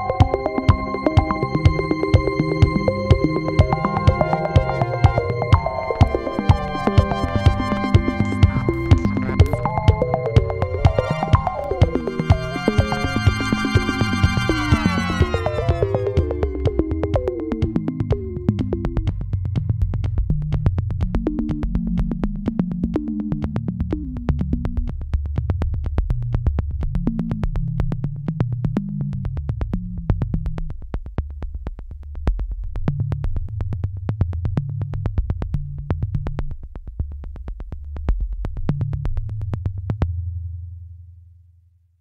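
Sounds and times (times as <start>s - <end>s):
electronic music with beat: 0.0s - 24.9s.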